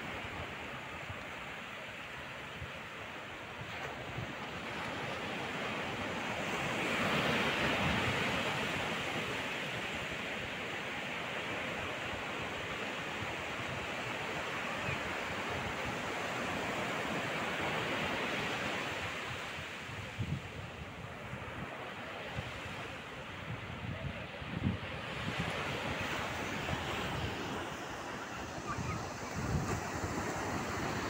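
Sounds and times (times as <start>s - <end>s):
waves breaking on a beach: 0.0s - 31.0s.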